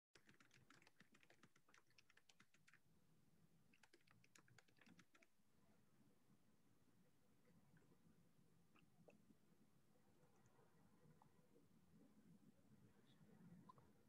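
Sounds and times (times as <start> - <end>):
faint keyboard typing: 0.2 - 3.0, 3.6 - 5.4.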